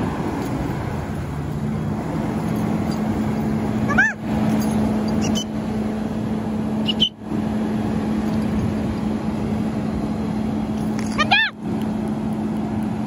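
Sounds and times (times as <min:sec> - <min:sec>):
fire engine low hum: 0:00.0 - 0:13.0
bird squawk: 0:03.8 - 0:04.2, 0:05.0 - 0:05.6, 0:06.8 - 0:07.2, 0:11.1 - 0:11.6.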